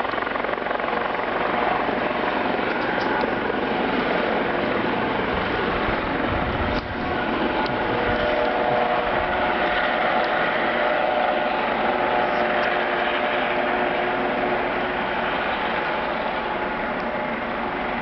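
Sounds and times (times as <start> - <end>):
metallic mechanical drone: 4.6 - 18.0.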